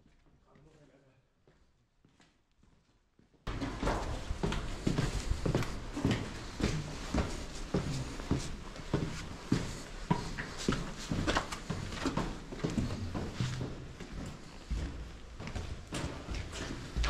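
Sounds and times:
footsteps on hard ground: 3.5s - 17.0s.

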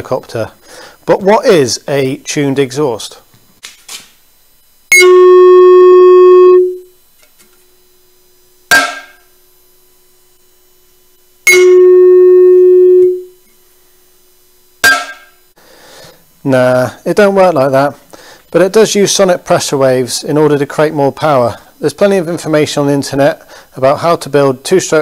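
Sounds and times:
ringing musical note: 4.9s - 6.9s, 11.5s - 13.4s
hammer tapping metal cone: 8.7s - 9.3s, 14.8s - 15.4s.

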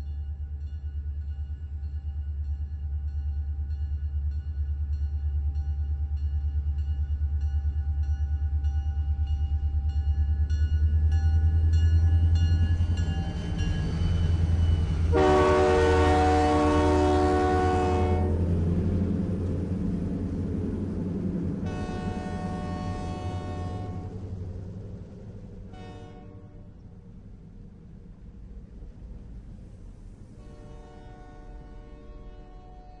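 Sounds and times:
locomotive engine rumble: 0.0s - 33.0s
locomotive horn blast: 14.4s - 18.7s, 21.6s - 24.3s, 25.7s - 26.8s, 30.4s - 33.0s.

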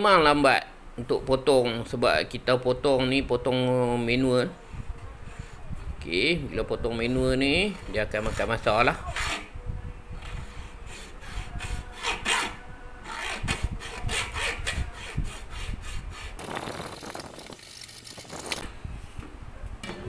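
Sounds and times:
hacksaw cutting plastic pipe: 11.0s - 17.4s.

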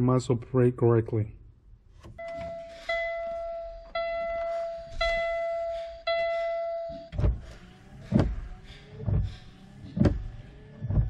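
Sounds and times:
dashboard warning chime: 2.2s - 7.4s.

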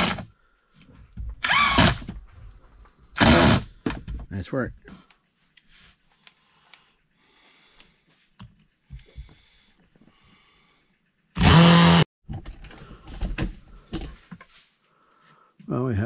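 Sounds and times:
cordless drill driving screws: 1.4s - 2.1s, 3.2s - 3.6s, 11.4s - 12.0s.

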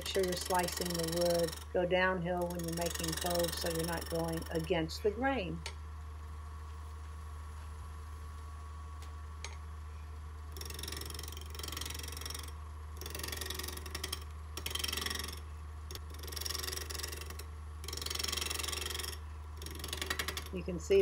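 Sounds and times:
wood lathe humming: 0.0s - 5.3s, 10.4s - 21.0s.

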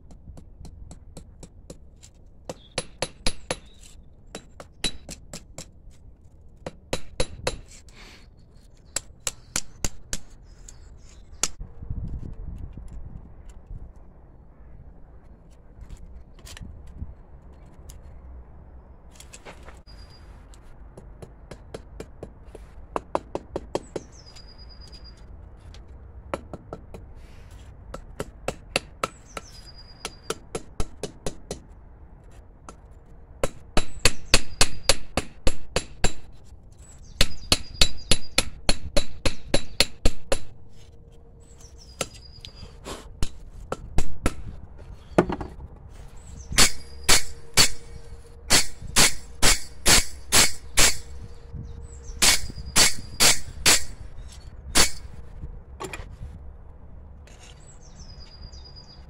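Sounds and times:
hammer striking steel on anvil: 46.6s - 51.2s.

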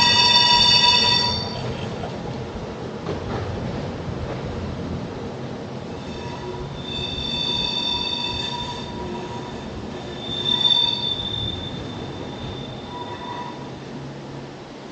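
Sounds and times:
train wheels squealing: 0.0s - 1.7s, 5.9s - 14.0s
train low rumble: 0.0s - 14.9s.

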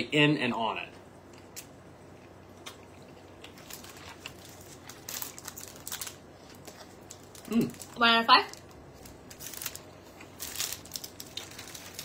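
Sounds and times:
plastic wrapper crinkling: 3.4s - 12.0s.

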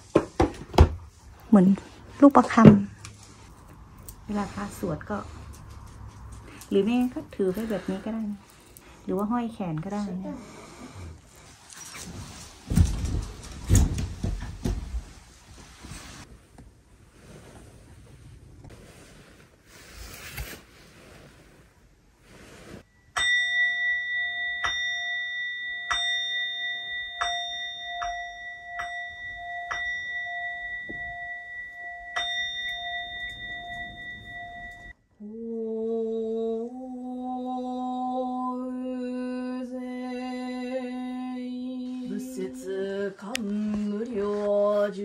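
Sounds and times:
bowl bell ringing: 22.9s - 35.1s.

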